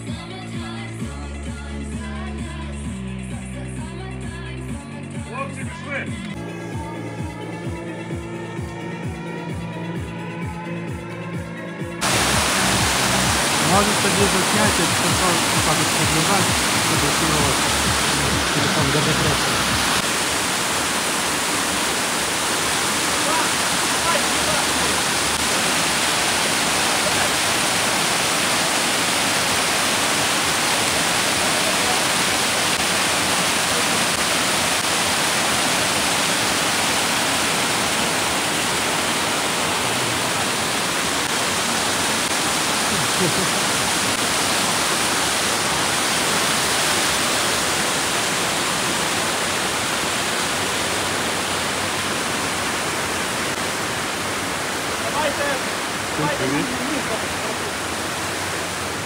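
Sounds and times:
fast-flowing water rushing: 12.0 - 59.0.

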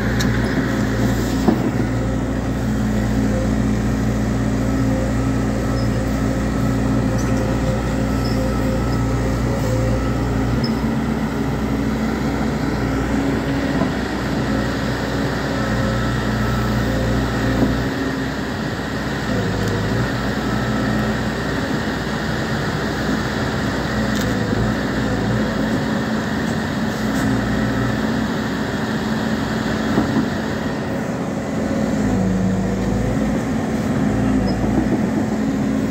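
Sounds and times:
excavator diesel engine under load: 0.0 - 35.9.

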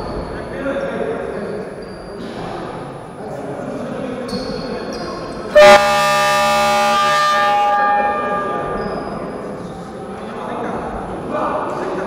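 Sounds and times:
scoreboard horn blaring: 5.6 - 9.0.

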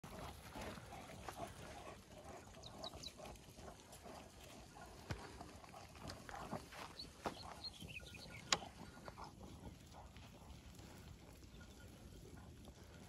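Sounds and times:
dogs running on gravel: 0.0 - 13.0.

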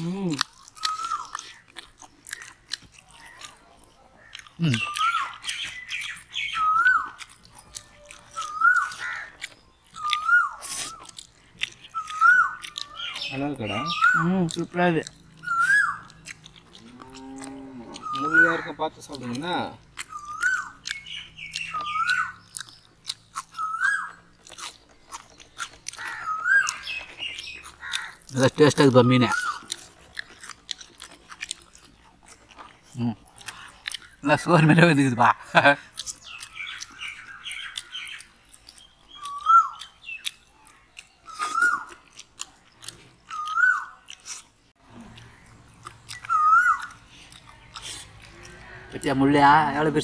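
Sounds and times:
fried fish crunching: 0.0 - 50.0
people chewing with smacking: 0.0 - 50.0
bird calling: 0.6 - 1.8, 2.4 - 30.2, 33.0 - 49.9
bird whistled call: 4.8 - 7.1, 8.3 - 9.1, 10.0 - 11.0, 12.0 - 14.2, 15.4 - 16.1, 18.0 - 18.6, 20.1 - 22.4, 23.5 - 24.2, 26.2 - 27.4, 39.2 - 40.2, 41.2 - 41.9, 43.3 - 44.0, 46.2 - 46.9.

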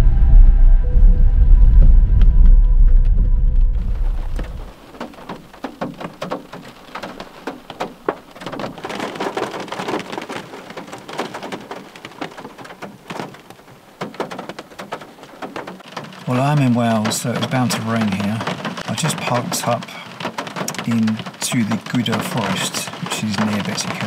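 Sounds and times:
rain on car roof and glass: 3.7 - 24.0.

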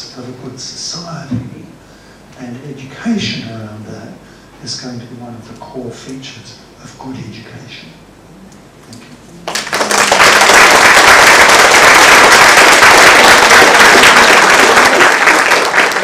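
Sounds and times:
audience applauding: 9.4 - 16.0.

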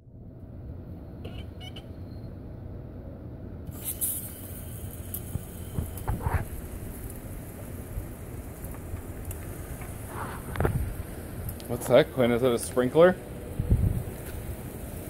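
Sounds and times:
sprinkler spraying water hiss: 3.7 - 15.0.

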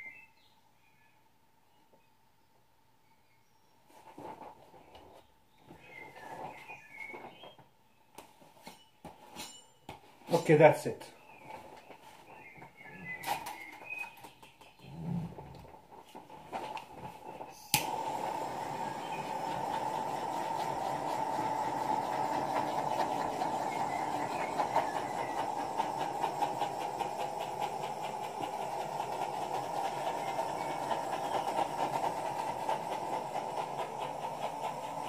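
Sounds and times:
hair dryer switch click: 17.7 - 17.9
hair dryer running: 17.7 - 35.0.

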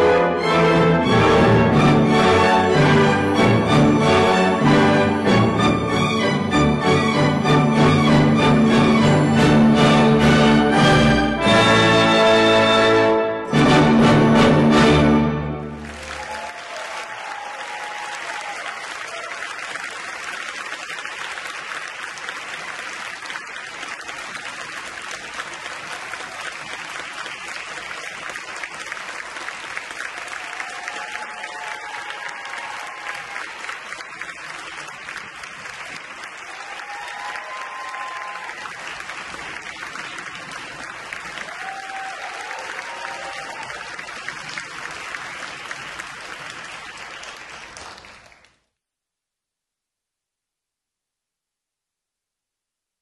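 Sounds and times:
orchestral music: 0.0 - 16.3
audience applauding: 1.0 - 11.7, 13.8 - 48.7.

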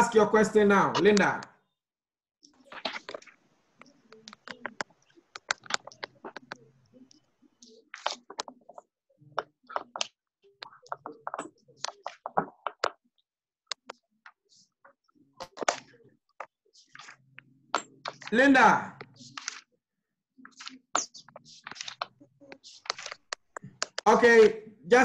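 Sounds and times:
broken voice on a call: 0.0 - 1.6, 18.1 - 19.4, 23.6 - 25.0
scattered clicks: 20.5 - 24.1.

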